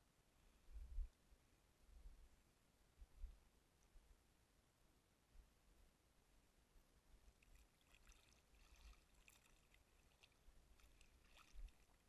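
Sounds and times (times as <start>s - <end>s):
water splashing at boat side: 7.4s - 12.0s.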